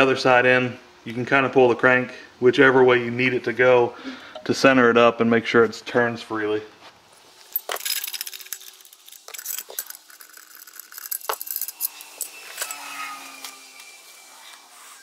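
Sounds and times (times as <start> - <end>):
steel parts clinking on workbench: 7.5 - 12.8.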